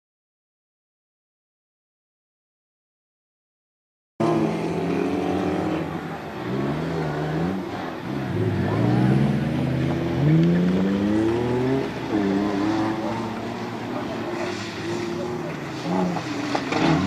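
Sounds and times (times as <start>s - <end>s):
off-road cars revving and accelerating: 4.2s - 17.0s.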